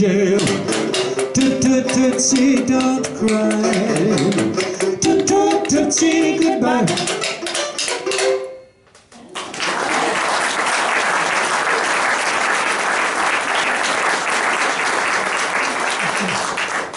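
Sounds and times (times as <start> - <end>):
audience applause: 9.2 - 16.9.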